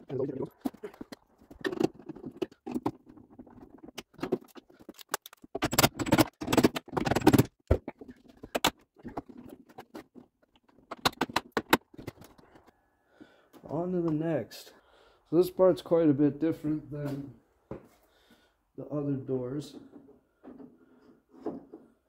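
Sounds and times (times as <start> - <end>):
parts rattling: 0.0 - 12.7
metal and plastic parts clicking: 0.6 - 12.7.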